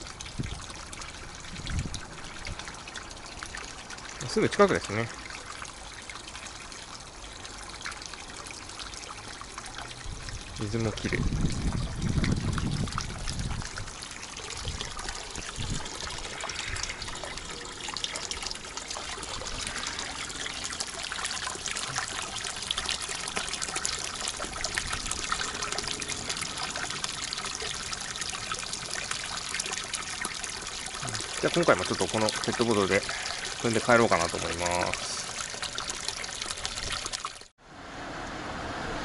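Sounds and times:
water splashing into pool: 0.0s - 37.5s
low rumble: 15.5s - 21.0s.

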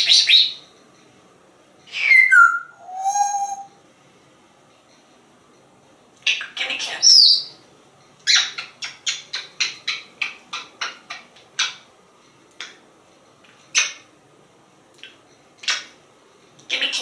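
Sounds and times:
parrot making kissing sounds: 8.5s - 11.8s.

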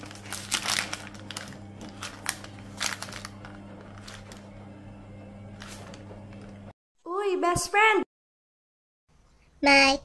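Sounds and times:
paper bag crinkling: 0.0s - 4.6s, 5.6s - 6.5s.

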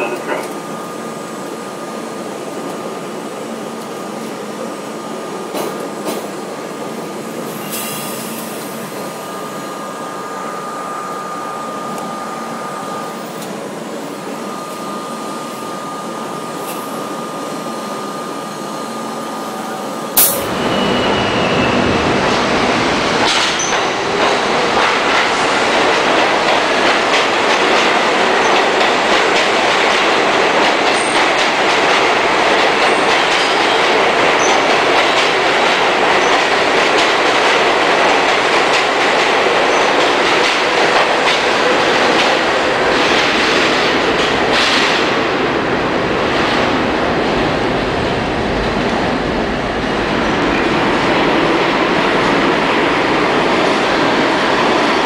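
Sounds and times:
subway train rumble in tunnel: 0.0s - 55.0s
subway train rushing past platform: 0.0s - 55.0s.

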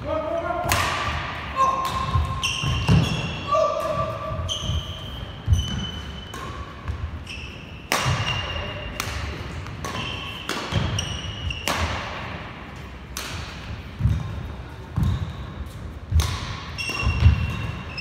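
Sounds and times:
racket striking shuttlecock: 0.6s - 4.1s, 5.6s - 7.1s, 7.9s - 14.4s, 16.1s - 17.9s
sneakers squeaking on floor: 1.6s - 12.0s, 14.0s - 18.0s.

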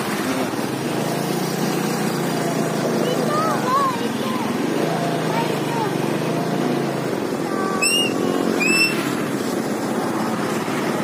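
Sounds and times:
diesel engine running: 0.0s - 11.0s
high rising squeaks: 7.8s - 9.2s.

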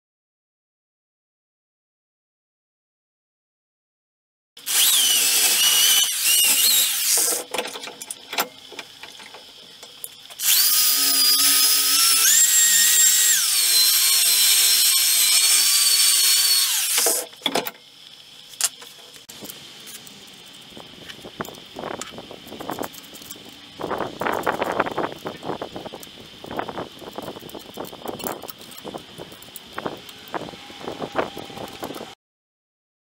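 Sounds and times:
electric drill with wire brush: 4.6s - 7.6s, 10.3s - 17.4s.

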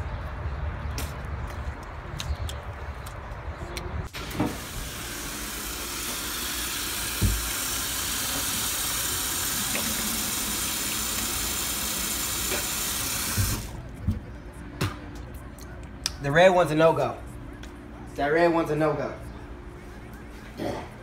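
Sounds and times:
tap running into a sink: 7.1s - 8.7s.

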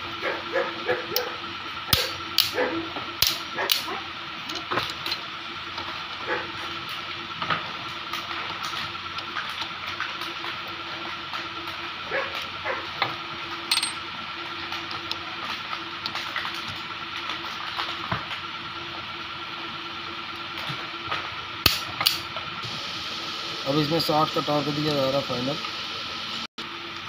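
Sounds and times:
steady background hum: 0.0s - 27.0s
torque wrench clicking: 1.9s - 2.6s, 3.2s - 3.9s.

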